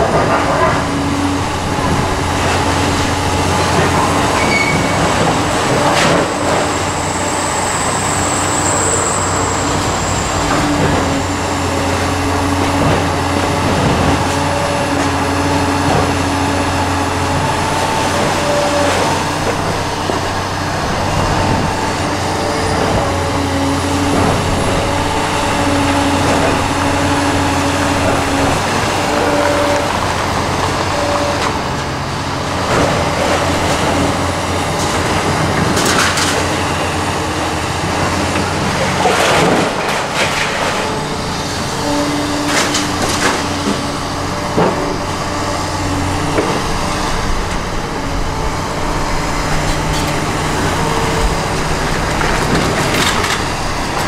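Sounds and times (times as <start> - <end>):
excavator diesel drone: 0.0 - 54.0
excavator whine: 0.0 - 54.0.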